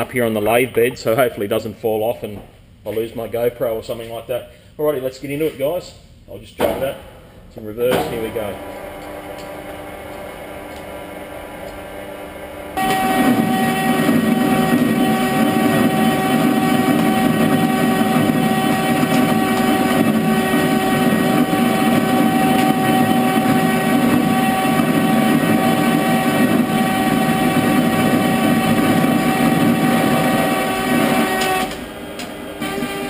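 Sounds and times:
lathe motor running: 0:08.6 - 0:33.0
metal lathe cutting steel: 0:12.8 - 0:33.0.

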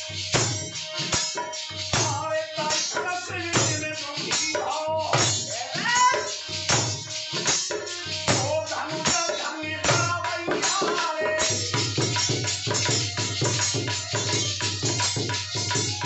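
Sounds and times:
bowed string instrument: 0:00.0 - 0:16.0
hand drum beating rhythm: 0:00.0 - 0:16.0
man singing: 0:02.0 - 0:06.6, 0:07.8 - 0:12.8.

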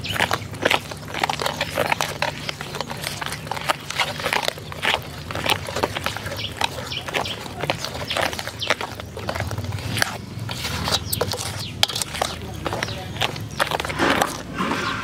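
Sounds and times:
thick batter stirred in bowl: 0:00.0 - 0:15.0.

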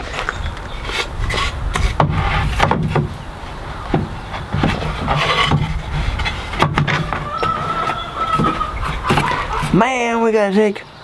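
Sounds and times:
boards scraping: 0:00.0 - 0:09.8
wooden boards knocking: 0:01.9 - 0:03.2, 0:03.9 - 0:09.8.

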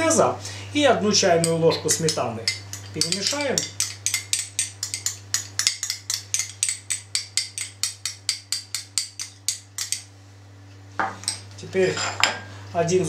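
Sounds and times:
teaspoon clinking against glass bowl: 0:01.4 - 0:10.1.

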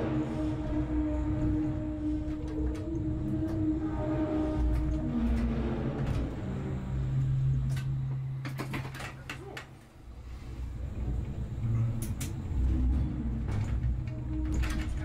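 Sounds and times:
vehicle engine humming: 0:00.0 - 0:15.0
clicks and rattles: 0:07.6 - 0:09.8.

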